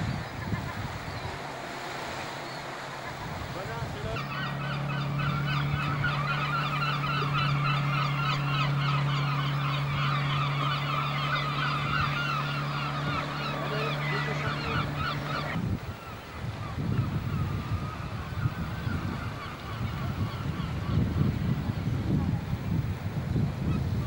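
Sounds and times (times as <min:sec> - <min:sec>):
gulls squawking: 0:02.0 - 0:21.9
steady low hum: 0:04.1 - 0:15.9.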